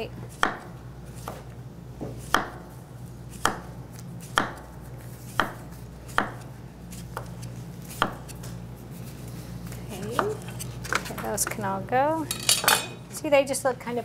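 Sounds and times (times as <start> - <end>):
knife chopping on cutting board: 0.3 - 1.4, 2.0 - 2.7, 3.3 - 8.4.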